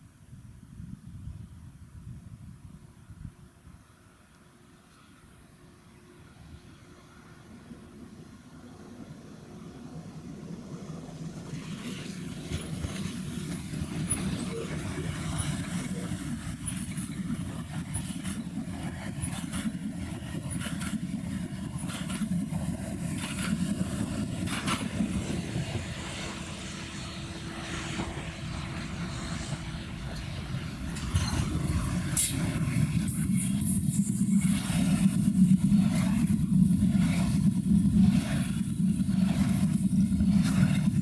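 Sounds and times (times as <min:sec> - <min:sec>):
approaching train: 0:00.0 - 0:41.0
train wheels rumbling on rail: 0:04.8 - 0:41.0
wheels clicking over rail joints: 0:11.4 - 0:25.2.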